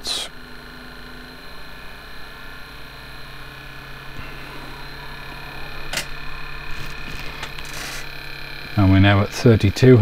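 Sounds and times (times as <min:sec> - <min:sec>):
small motor humming and whining: 0:00.0 - 0:10.0.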